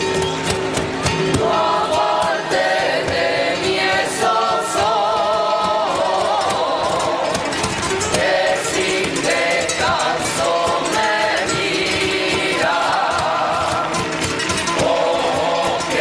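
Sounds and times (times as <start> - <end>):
percussive taps: 0.0 - 16.0
group singing: 1.3 - 16.0.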